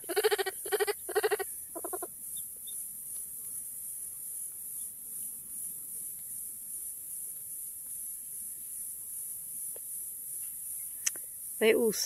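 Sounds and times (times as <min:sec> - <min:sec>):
monkey bleating calls: 0:00.0 - 0:02.1.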